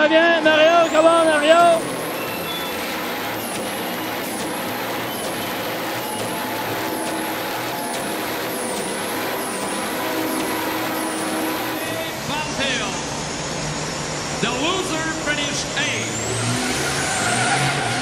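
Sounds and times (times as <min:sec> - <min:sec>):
tyres spinning on pavement: 0:00.0 - 0:12.2
diesel engine at high revs: 0:00.0 - 0:18.0
high whistle: 0:00.6 - 0:12.2.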